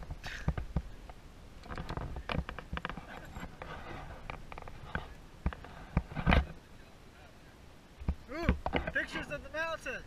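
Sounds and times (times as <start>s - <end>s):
sharp clicks and knocks: 0.0s - 6.5s.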